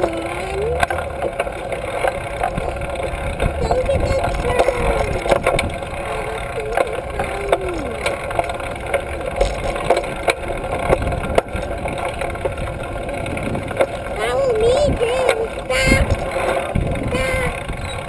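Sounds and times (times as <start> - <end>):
bike clicks and rattles: 0.8 - 18.0
wind on microphone: 2.3 - 8.6, 9.4 - 18.0.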